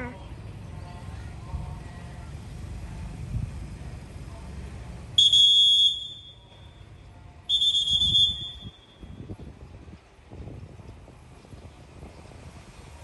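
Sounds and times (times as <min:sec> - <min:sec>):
whistle blasts: 0:05.2 - 0:06.8, 0:07.5 - 0:09.2.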